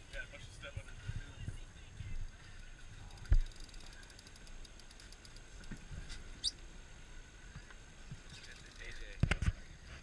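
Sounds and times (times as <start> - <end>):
fishing reel clicking: 3.0 - 5.8, 8.2 - 9.2.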